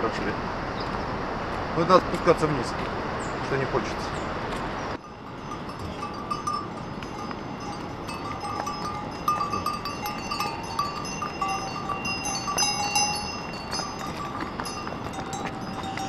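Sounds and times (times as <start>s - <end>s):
hooves on stony path: 4.5s - 16.0s
mule bells ringing: 5.0s - 16.0s.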